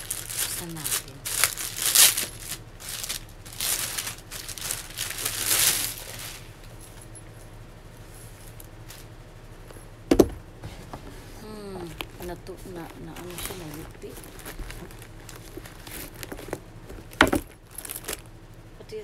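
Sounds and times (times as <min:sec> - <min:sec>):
plastic packaging crinkling: 0:00.0 - 0:06.8, 0:11.7 - 0:18.3
thump: 0:10.1 - 0:10.4.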